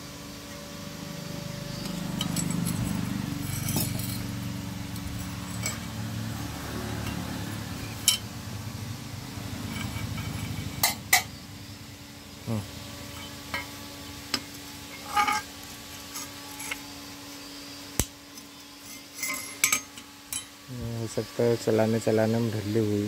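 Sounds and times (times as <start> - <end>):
low steady hum: 0.0 - 23.0
metal tools clinking: 1.7 - 8.3, 9.6 - 11.3, 14.9 - 17.0, 18.4 - 20.6.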